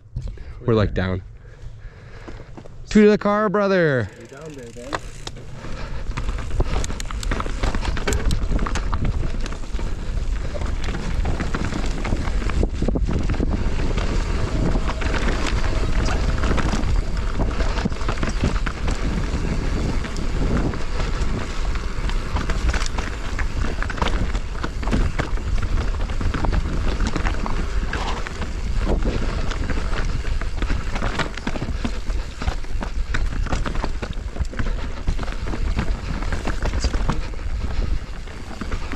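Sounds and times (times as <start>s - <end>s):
bike rattling over bumps: 1.4s - 38.9s
wind buffeting microphone: 4.6s - 38.9s
low rumble: 5.4s - 31.9s.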